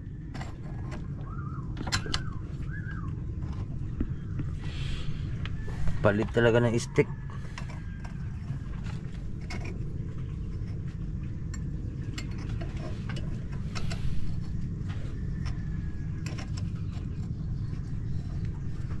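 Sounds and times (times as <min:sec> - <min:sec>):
boat engine rumbling: 0:00.0 - 0:19.0.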